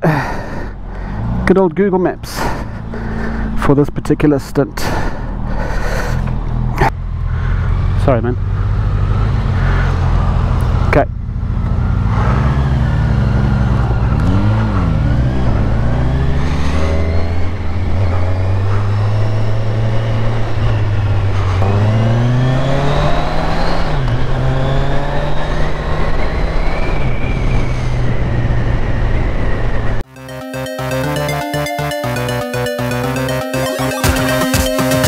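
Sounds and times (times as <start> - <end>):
motorcycle engine accelerating: 5.2 - 27.8.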